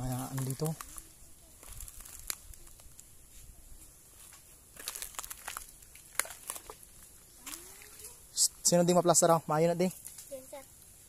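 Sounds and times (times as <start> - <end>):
footsteps crunching dry leaves: 0.0 - 8.1.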